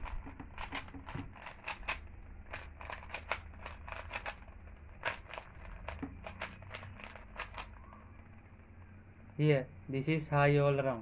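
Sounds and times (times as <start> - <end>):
puzzle cube plastic clicks: 0.0 - 8.0.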